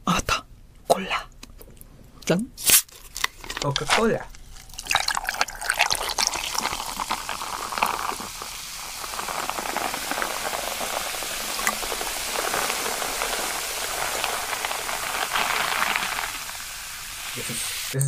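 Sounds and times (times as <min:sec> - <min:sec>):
ice clinking: 0:03.1 - 0:17.9
soda fizzing in a glass: 0:03.8 - 0:18.0.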